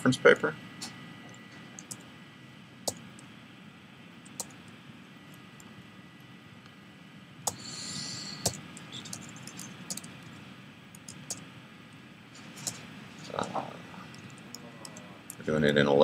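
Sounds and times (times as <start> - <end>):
keyboard typing: 1.8 - 2.0, 4.2 - 4.6, 8.4 - 11.4.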